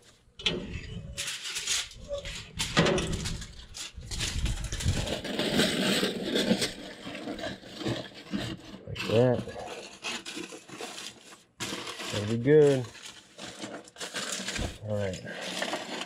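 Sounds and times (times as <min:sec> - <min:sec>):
aluminium foil crinkling: 0:01.0 - 0:16.0.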